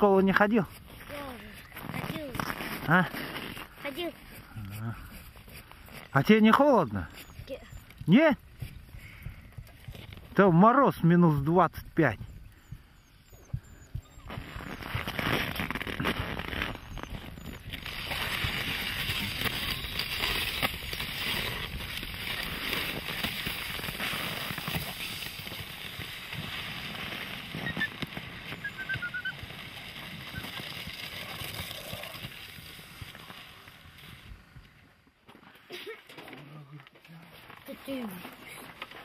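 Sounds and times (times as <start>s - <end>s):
frozen snow crunching: 0.0s - 7.7s, 14.2s - 34.6s.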